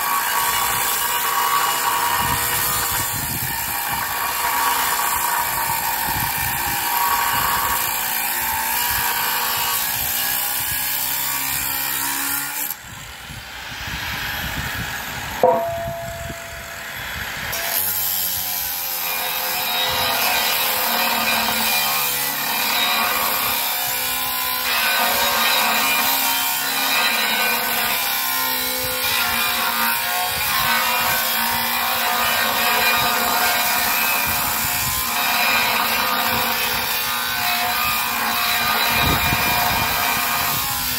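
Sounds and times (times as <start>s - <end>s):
angle grinder cutting steel: 0.0s - 40.9s
sharp knock: 15.4s - 16.6s.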